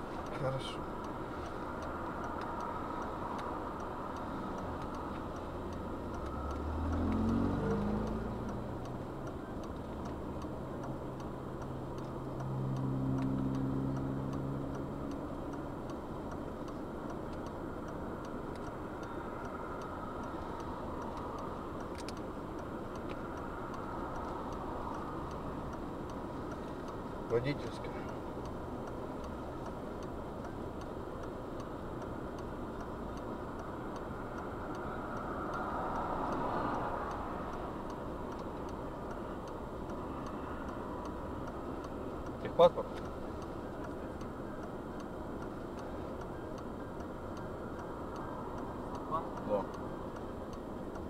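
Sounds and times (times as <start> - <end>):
car engine idling hum: 0.0 - 51.0
faint regular ticking: 0.0 - 51.0
vehicle passing by: 1.7 - 10.6, 12.0 - 15.8, 33.1 - 43.4.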